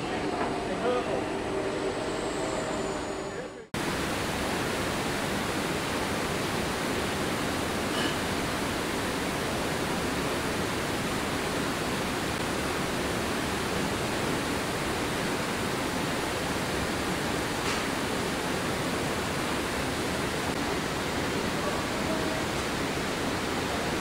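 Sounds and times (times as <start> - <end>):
factory air rushing: 0.0 - 5.4.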